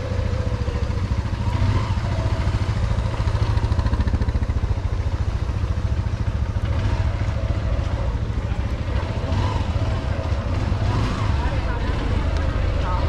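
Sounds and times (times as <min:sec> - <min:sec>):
motorcycle engine low revs: 0:05.6 - 0:13.0.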